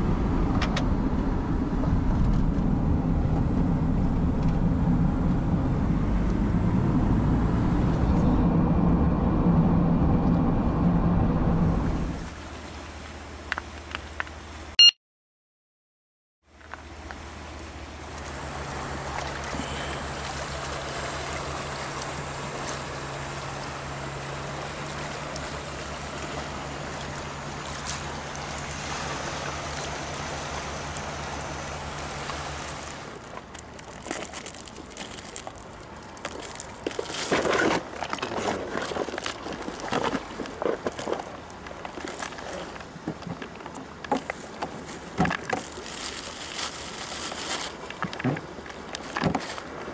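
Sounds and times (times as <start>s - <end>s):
steady low drone: 0.0s - 12.3s
water lapping on rocks: 19.0s - 49.9s
plastic bag crinkling: 33.2s - 42.6s, 44.8s - 48.0s.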